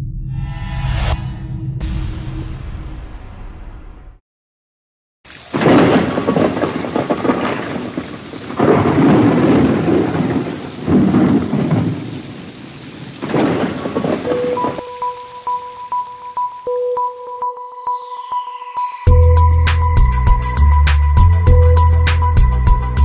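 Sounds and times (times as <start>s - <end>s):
heavy rain hissing: 5.3s - 16.1s
thunder rolling: 5.4s - 15.4s
electronic beeping tones: 14.2s - 19.6s.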